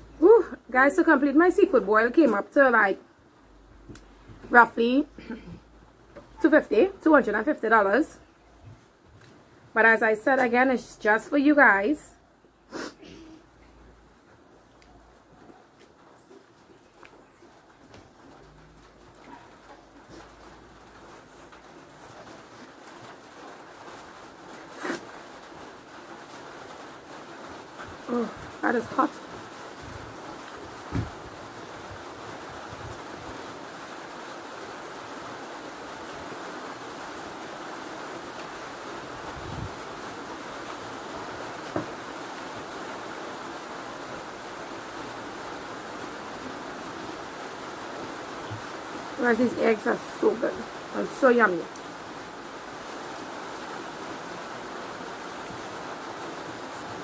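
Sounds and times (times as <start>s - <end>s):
background hiss: 0.0s - 57.0s
person blowing nose into tissue: 12.7s - 13.4s, 24.7s - 25.1s.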